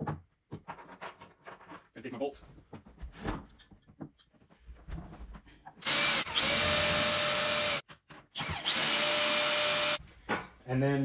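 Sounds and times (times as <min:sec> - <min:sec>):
cordless drill whining: 0:05.8 - 0:07.8, 0:08.4 - 0:10.0.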